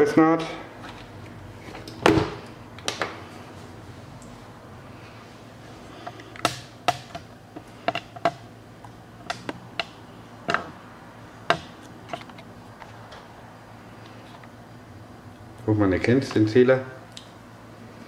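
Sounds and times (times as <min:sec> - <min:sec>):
sharp clicks and knocks: 0:06.0 - 0:10.8, 0:11.5 - 0:12.9.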